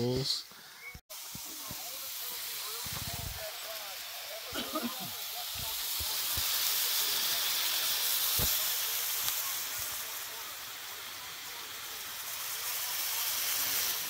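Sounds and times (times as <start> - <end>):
steaks sizzling on a griddle: 1.1 - 14.0.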